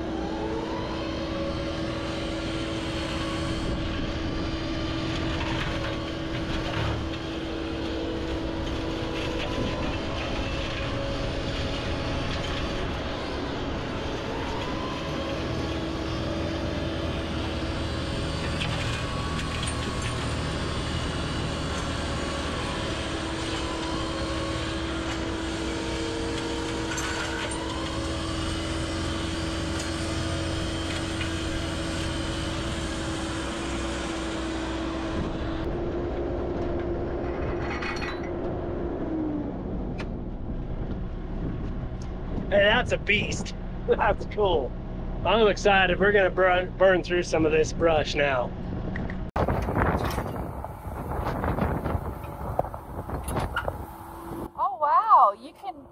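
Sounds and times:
diesel engine and hydraulics running: 0:00.0 - 0:55.9
steady mechanical whine: 0:00.0 - 0:55.9.

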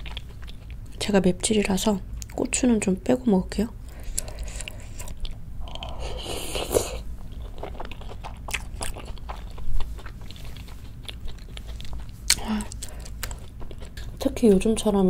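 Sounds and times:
wet chewing mouth clicks: 0:04.1 - 0:14.3.

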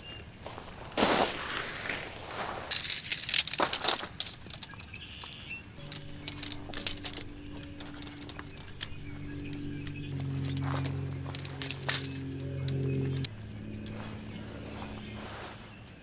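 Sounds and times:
tent pole sections clicking: 0:02.7 - 0:15.2.

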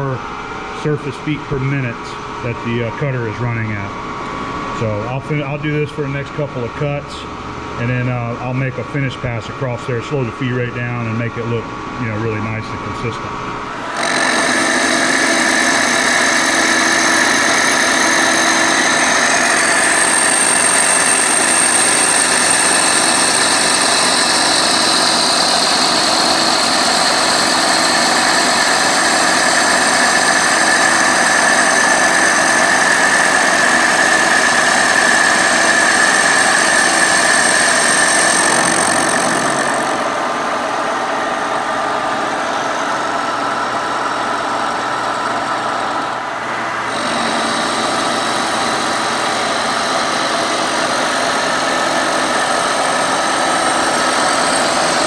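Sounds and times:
milling machine drive running: 0:13.6 - 0:55.0
milling machine cutting metal: 0:13.7 - 0:55.0.

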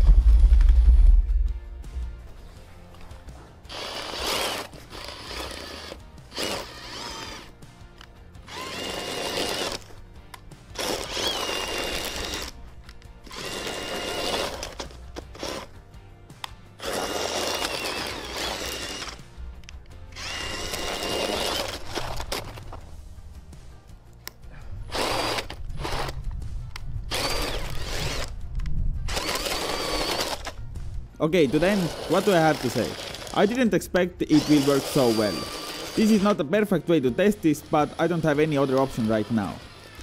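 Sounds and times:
cordless drill motor whining: 0:03.7 - 0:10.0, 0:10.8 - 0:15.7, 0:16.8 - 0:19.2, 0:20.1 - 0:22.6, 0:24.9 - 0:26.2, 0:27.1 - 0:28.4, 0:29.1 - 0:30.6, 0:31.4 - 0:33.6, 0:34.3 - 0:36.4, 0:37.4 - 0:40.0.

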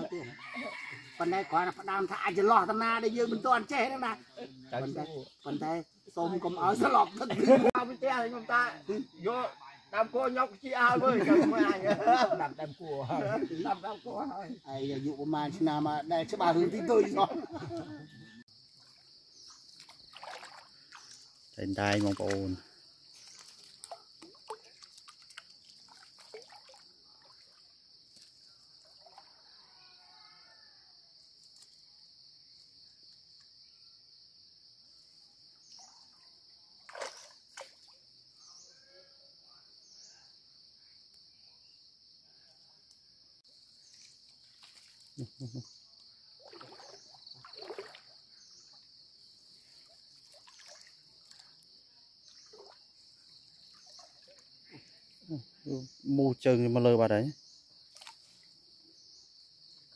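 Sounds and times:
insect chorus: 0:00.0 - 0:59.9
water splashing and sloshing: 0:18.7 - 0:29.3, 0:36.8 - 0:38.0, 0:43.9 - 0:45.2, 0:46.4 - 0:48.8, 0:49.5 - 0:51.6, 0:52.3 - 0:54.6.

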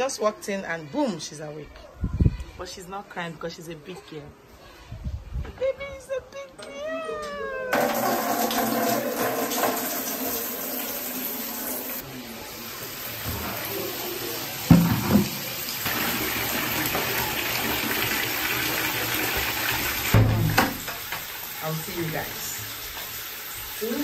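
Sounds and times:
water splashing into plastic bucket: 0:07.8 - 0:10.9
water poured from kettle: 0:07.8 - 0:12.0, 0:14.9 - 0:21.6.

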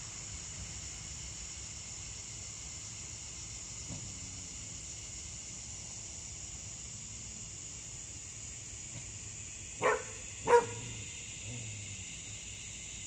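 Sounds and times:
crickets chirring: 0:00.0 - 0:13.0
dog barking: 0:09.8 - 0:11.0.

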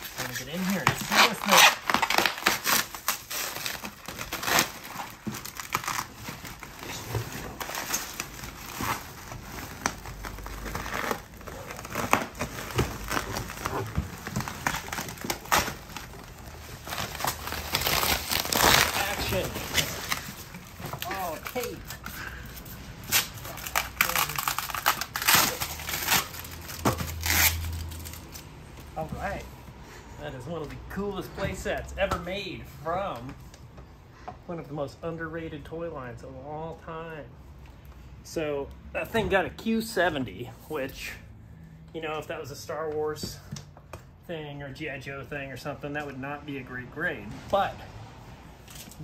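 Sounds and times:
plastic ripping: 0:00.0 - 0:22.1, 0:23.0 - 0:28.5
bubble wrap crinkling: 0:00.0 - 0:28.6.

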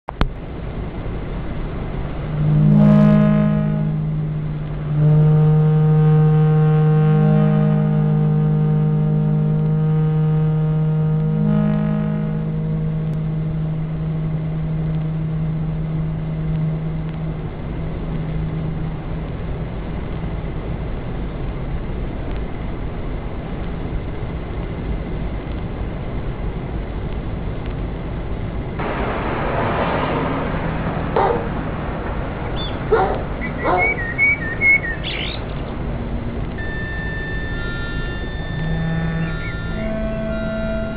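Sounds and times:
low hum: 0:00.0 - 0:40.9
short calls and gliding chirps: 0:31.0 - 0:35.9.

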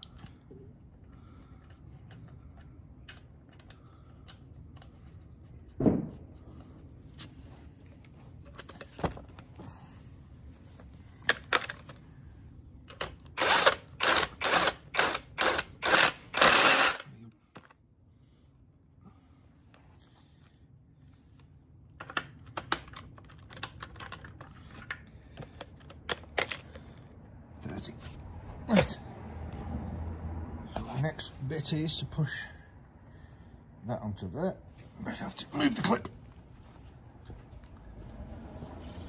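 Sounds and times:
cordless driver running: 0:13.4 - 0:17.0.

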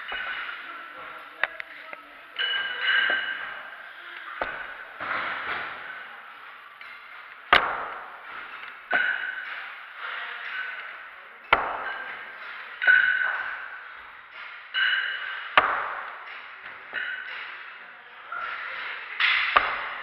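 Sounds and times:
metal gym weights clanking: 0:00.0 - 0:01.4, 0:02.2 - 0:20.0.

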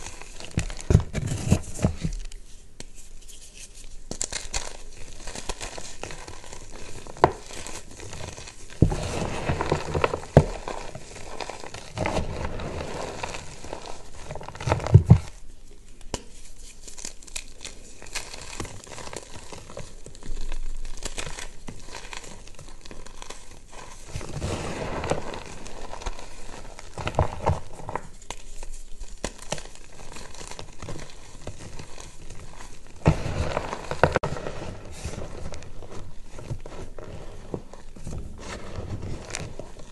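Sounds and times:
chalk crunching by hand: 0:00.0 - 0:15.4, 0:16.2 - 0:39.9
powder sifting hiss: 0:05.8 - 0:15.0, 0:23.6 - 0:27.5.

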